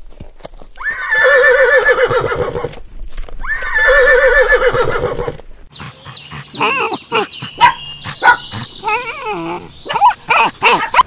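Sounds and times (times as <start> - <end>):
horse whinnying: 0.8 - 2.7, 3.4 - 5.4.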